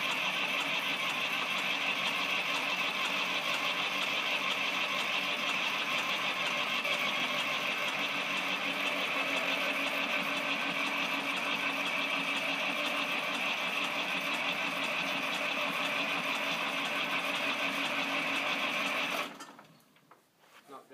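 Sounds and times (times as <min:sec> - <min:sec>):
diesel engine running: 0:00.0 - 0:19.4.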